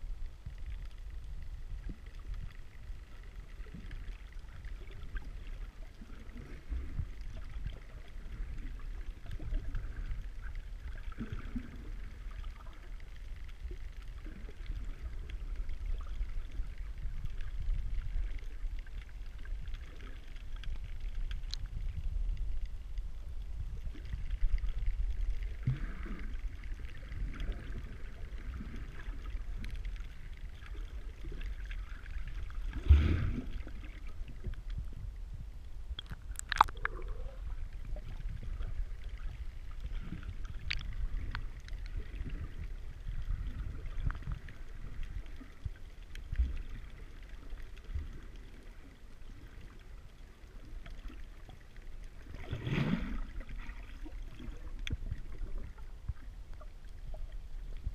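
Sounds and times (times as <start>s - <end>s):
faint ticks: 0.0s - 34.9s, 35.6s - 52.4s, 53.2s - 57.9s
underwater rumble of moving water: 0.0s - 57.9s
bubbles gurgling: 3.4s - 13.0s, 23.8s - 34.5s, 36.0s - 49.8s, 52.1s - 56.3s.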